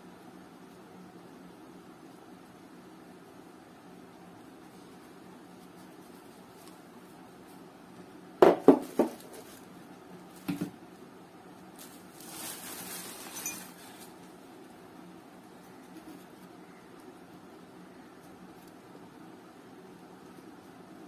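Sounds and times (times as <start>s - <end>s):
bubble wrap rustling: 8.8s - 10.8s, 11.6s - 14.4s.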